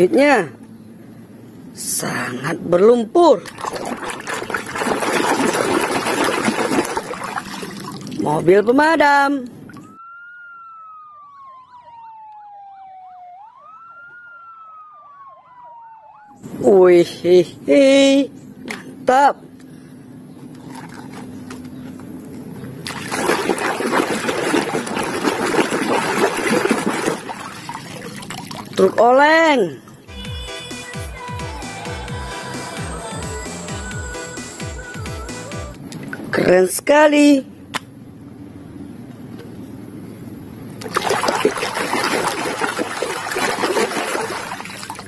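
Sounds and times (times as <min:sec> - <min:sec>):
water splashing in a basin: 0:03.3 - 0:08.6, 0:20.5 - 0:21.6, 0:22.8 - 0:29.3, 0:40.8 - 0:45.0.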